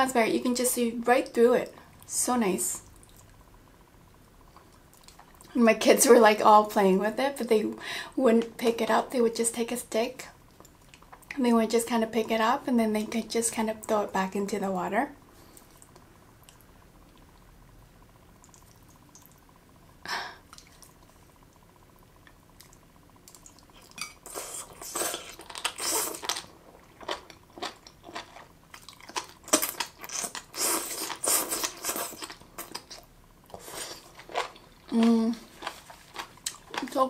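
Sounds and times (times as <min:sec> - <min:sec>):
crunchy wet chewing: 0:22.2 - 0:37.0
slurping: 0:29.5 - 0:36.7.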